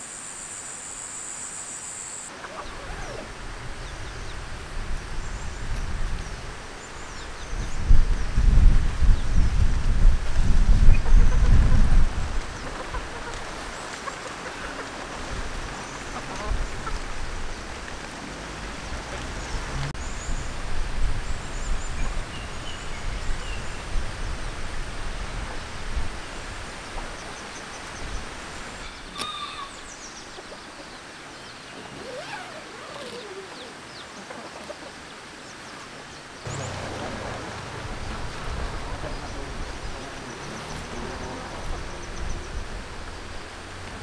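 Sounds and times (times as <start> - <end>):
steady background hiss: 0.0 - 11.3, 11.9 - 44.0
chickens clucking: 12.6 - 15.4, 16.0 - 17.2
small birds chirping: 26.8 - 42.7.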